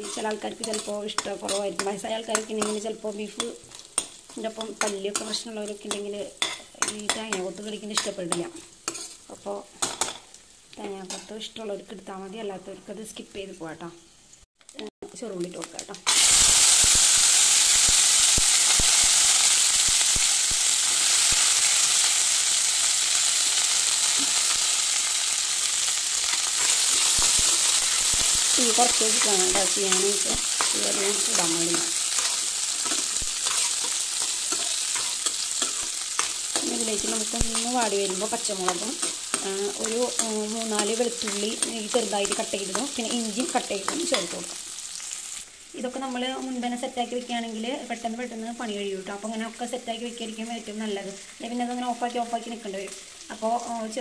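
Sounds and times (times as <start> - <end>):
spoon scraping against pan: 0.0 - 10.3, 26.2 - 44.4
food sizzling in hot oil: 0.0 - 13.2, 13.9 - 54.0.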